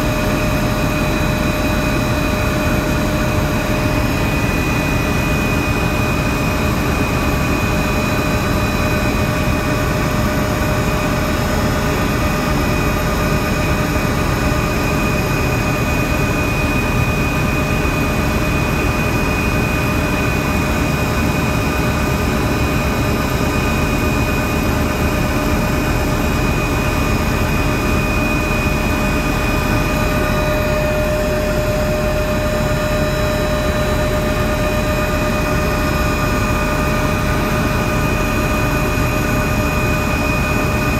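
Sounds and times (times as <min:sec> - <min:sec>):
helicopter engine and rotor drone: 0:00.0 - 0:40.9
high whine: 0:23.7 - 0:40.9.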